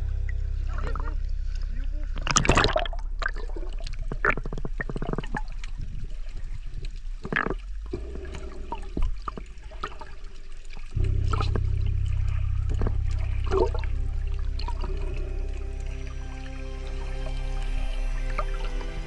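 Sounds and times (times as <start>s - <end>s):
water gurgling and splashing: 0.0s - 19.0s
quick clicks and bubbling: 2.2s - 14.0s.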